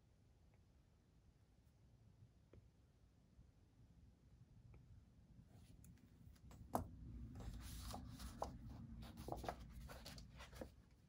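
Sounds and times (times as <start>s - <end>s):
paper rustling: 6.4s - 11.0s.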